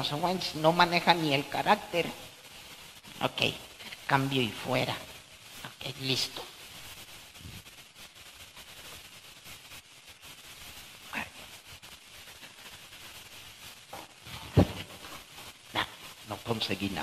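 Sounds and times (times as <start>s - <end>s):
room tone hiss: 0.0s - 17.0s
sharp thump: 14.5s - 14.9s.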